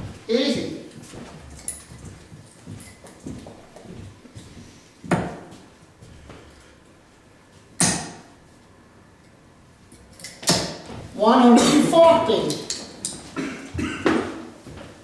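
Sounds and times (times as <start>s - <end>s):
darts striking dartboard: 5.1s - 5.5s, 7.8s - 8.3s.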